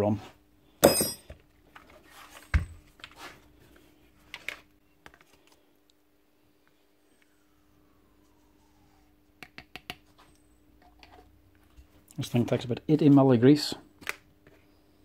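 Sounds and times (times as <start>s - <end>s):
metal housing clunking on workbench: 0.8s - 1.3s.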